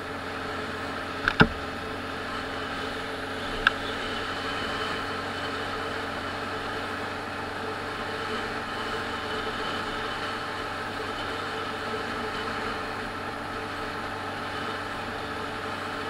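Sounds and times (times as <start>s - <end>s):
motorcycle engine running: 0.0s - 16.0s
sharp click: 1.2s - 1.6s.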